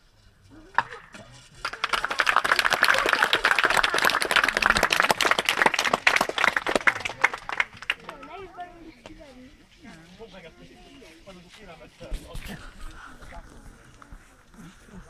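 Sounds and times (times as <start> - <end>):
audience applauding: 1.6 - 8.3.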